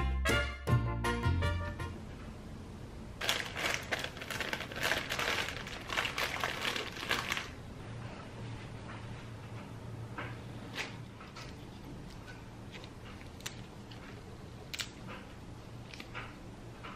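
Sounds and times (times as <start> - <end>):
plastic bag crinkling: 3.2 - 7.6.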